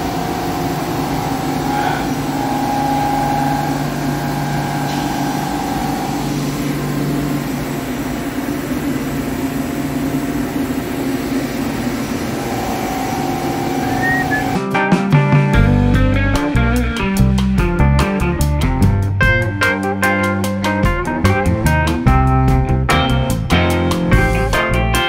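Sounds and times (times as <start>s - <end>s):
high-pitched whine: 0.0s - 14.6s
lathe machine hum: 0.0s - 14.6s.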